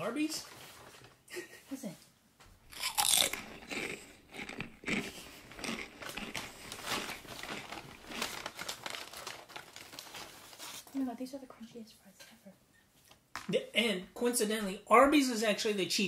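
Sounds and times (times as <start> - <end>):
fries crunching while chewed: 2.7 - 10.4
paper bag rustling: 5.3 - 10.9.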